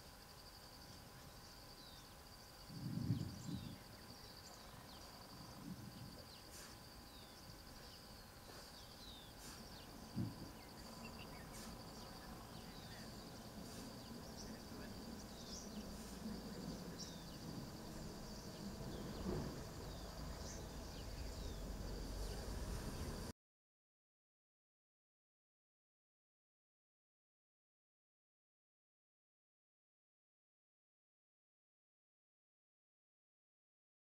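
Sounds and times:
insect trilling: 0.3s - 23.3s.

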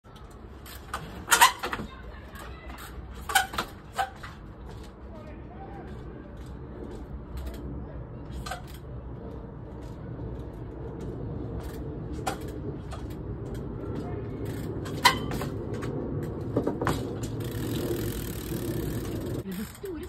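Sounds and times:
steady low rumble: 4.4s - 19.7s
bike landing knocks: 14.0s - 19.4s.

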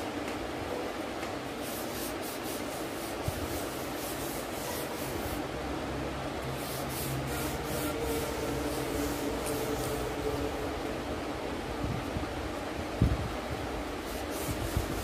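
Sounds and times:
low fan hum: 0.0s - 15.0s
cotton rubbing on paper: 1.6s - 5.4s, 6.6s - 10.4s, 14.0s - 15.0s.

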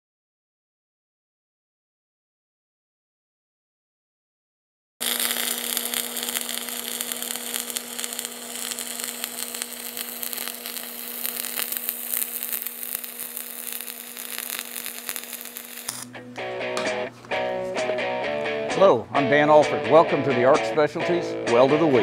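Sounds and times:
welding arc crackling and buzzing: 5.0s - 16.2s.

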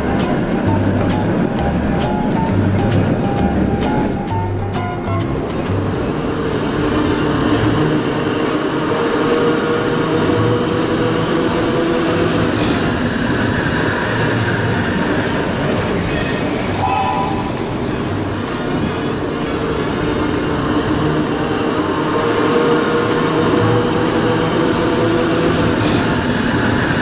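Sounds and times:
wheels rumbling on rails: 0.0s - 27.0s
brief high tone: 16.8s - 17.6s.

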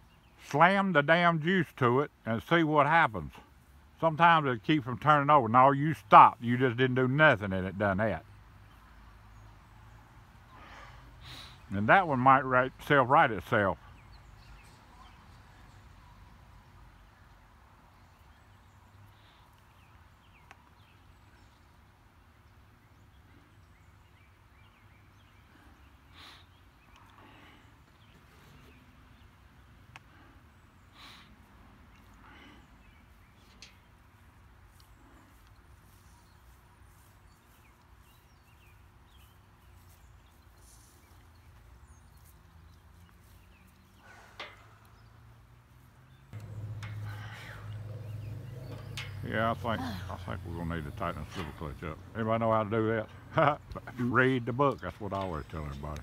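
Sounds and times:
distant bird chirps: 5.9s - 56.0s
faint low rumble: 46.3s - 53.9s.

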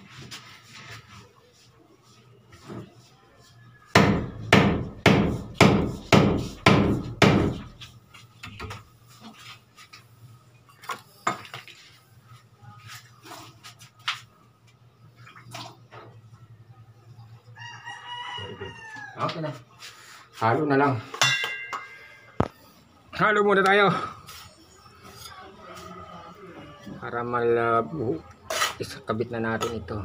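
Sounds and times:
hammer strikes: 3.9s - 7.7s, 21.2s - 22.0s.

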